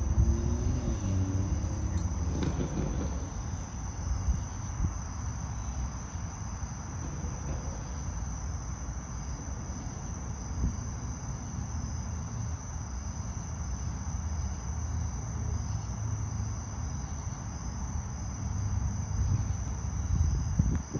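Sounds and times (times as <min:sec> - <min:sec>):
low rumble: 0:00.0 - 0:05.2
high-pitched insect chorus: 0:00.0 - 0:20.9.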